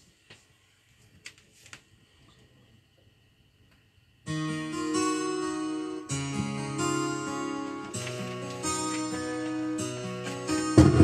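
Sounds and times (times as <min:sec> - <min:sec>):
electronic keyboard chords: 0:04.3 - 0:11.0.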